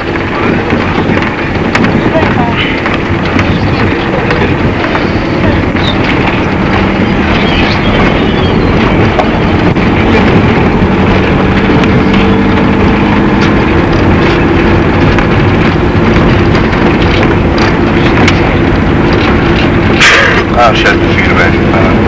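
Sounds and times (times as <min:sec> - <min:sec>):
vehicle engine droning: 0:00.0 - 0:22.0
wind noise on microphone: 0:00.0 - 0:22.0.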